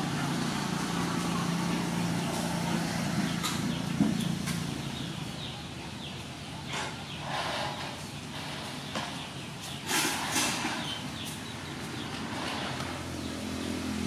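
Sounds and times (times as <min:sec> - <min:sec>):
low engine hum: 0:00.0 - 0:06.4, 0:11.6 - 0:14.0.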